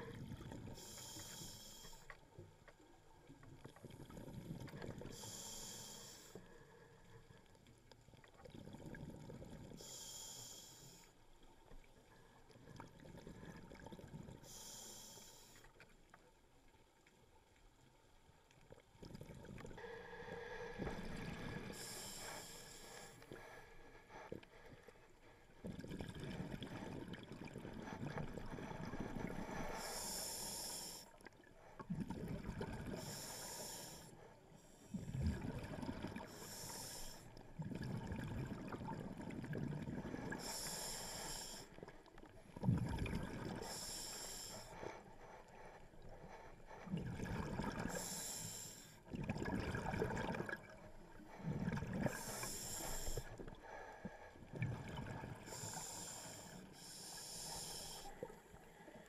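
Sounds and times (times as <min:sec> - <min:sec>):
hissing regulator inhale: 0:00.8 - 0:02.2, 0:05.0 - 0:07.1, 0:09.8 - 0:11.2, 0:14.4 - 0:15.7, 0:19.8 - 0:24.9, 0:28.0 - 0:31.2, 0:32.8 - 0:35.2, 0:36.2 - 0:37.4, 0:40.0 - 0:41.8, 0:43.4 - 0:47.0, 0:47.7 - 0:49.1, 0:51.1 - 0:54.6, 0:55.2 - 0:59.0
exhaled bubbles rumbling: 0:25.6 - 0:29.4, 0:31.9 - 0:33.2, 0:35.0 - 0:36.3, 0:37.4 - 0:40.4, 0:42.3 - 0:43.6, 0:46.9 - 0:48.0, 0:49.1 - 0:53.4, 0:54.4 - 0:55.8.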